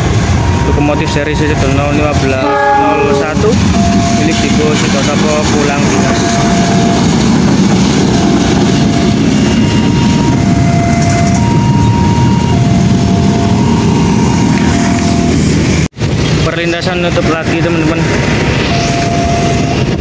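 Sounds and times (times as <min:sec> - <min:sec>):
diesel locomotive rumbling: 0:00.0 - 0:20.0
road traffic: 0:00.0 - 0:20.0
faint two-tone alternating tone: 0:02.5 - 0:04.8.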